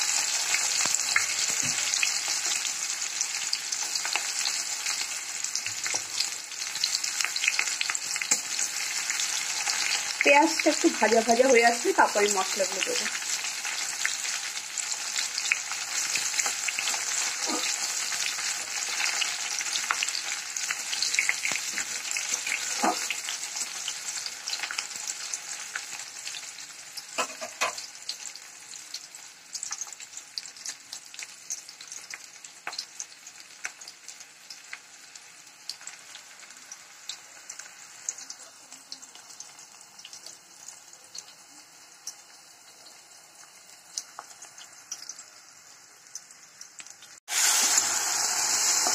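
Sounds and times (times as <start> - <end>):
onion sizzling in hot oil: 0.0 - 48.9
metal spatula scraping a pan: 16.4 - 18.0, 27.2 - 27.9.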